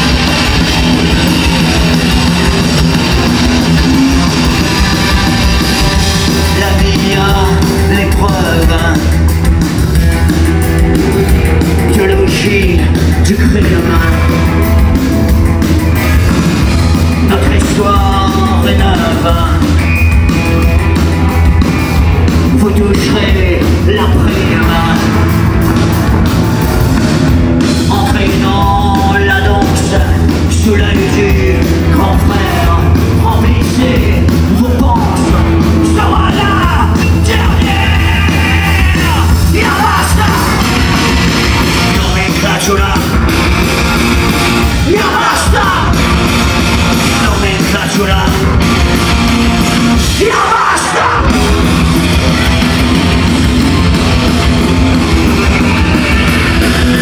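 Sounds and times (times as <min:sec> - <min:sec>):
rock band playing live: 0:00.0 - 0:57.0
singer yelling: 0:27.9 - 0:43.3, 0:44.6 - 0:46.3, 0:50.0 - 0:52.0.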